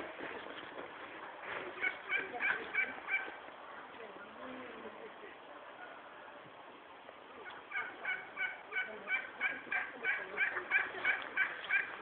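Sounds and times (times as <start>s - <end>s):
fowl calling: 1.7s - 3.4s, 7.4s - 12.0s.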